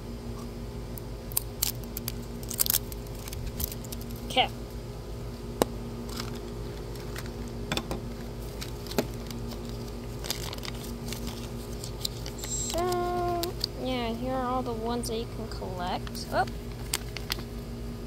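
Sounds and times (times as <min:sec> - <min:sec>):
crinkling of wrappers: 0:01.3 - 0:04.4, 0:06.0 - 0:13.9, 0:16.0 - 0:17.6.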